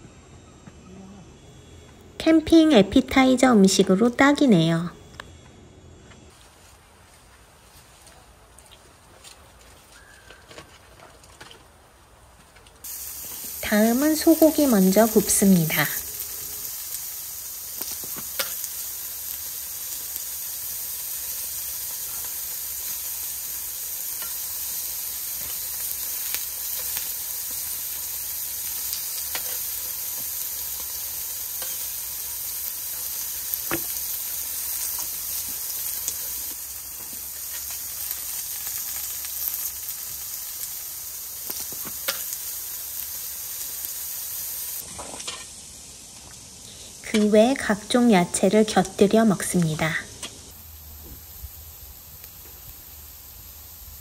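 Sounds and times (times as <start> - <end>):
meat sizzling on a grill: 12.8 - 54.0.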